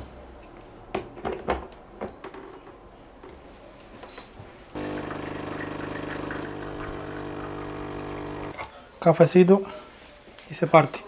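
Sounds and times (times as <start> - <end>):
coffee machine humming: 4.8 - 8.6.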